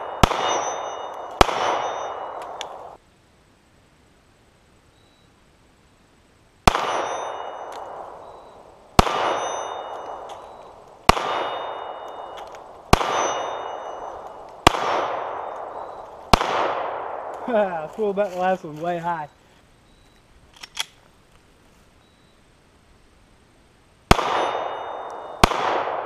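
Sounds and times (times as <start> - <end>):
pistol shots with ringing tail: 0.0 - 3.0, 6.7 - 17.5, 24.1 - 26.0.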